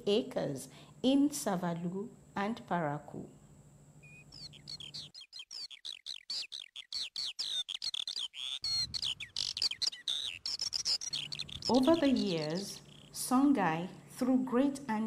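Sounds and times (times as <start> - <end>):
birds chirping: 4.0 - 13.4.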